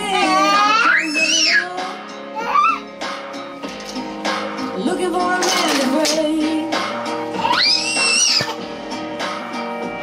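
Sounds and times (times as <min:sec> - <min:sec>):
person singing: 0:00.0 - 0:02.8, 0:04.7 - 0:08.5.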